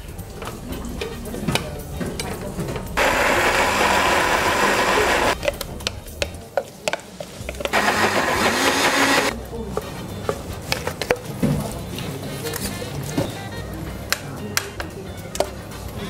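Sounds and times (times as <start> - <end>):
blender running: 3.0 - 5.4, 7.7 - 9.3.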